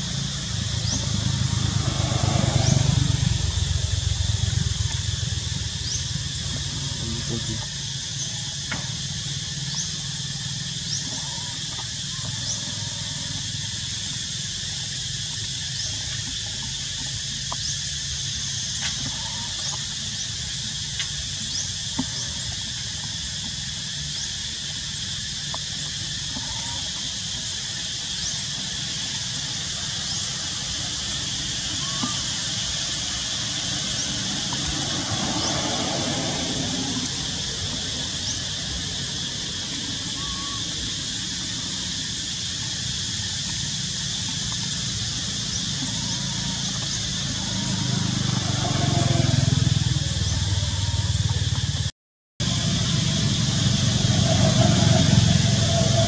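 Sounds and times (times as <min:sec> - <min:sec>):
low rumble: 0:00.0 - 0:08.1
high insect drone: 0:00.0 - 0:56.0.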